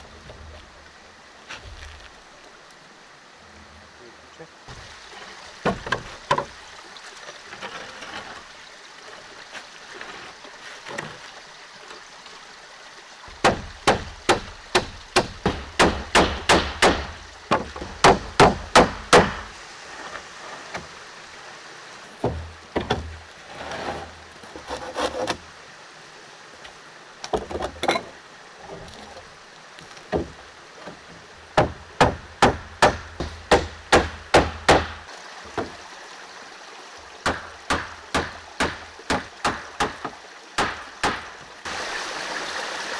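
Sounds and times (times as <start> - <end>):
wooden knocks: 5.6 - 6.6, 13.3 - 19.5, 22.2 - 23.2, 30.0 - 35.8.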